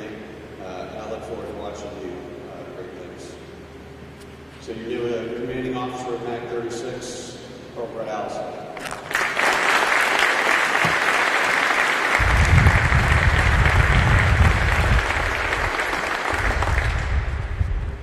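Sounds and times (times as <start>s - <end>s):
audience applauding: 8.8s - 17.5s
low rumble: 12.2s - 18.0s.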